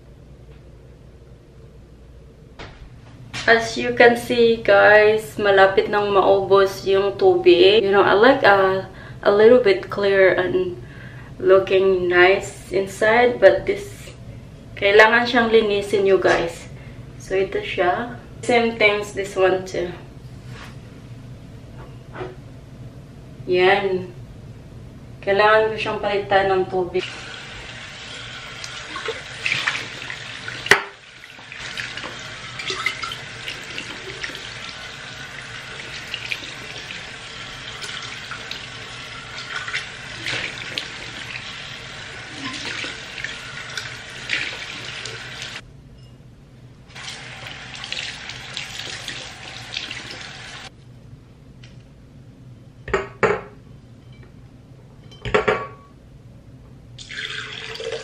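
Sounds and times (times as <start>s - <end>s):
faucet water running into glass: 27.0s - 45.6s, 47.0s - 50.7s, 57.0s - 58.0s.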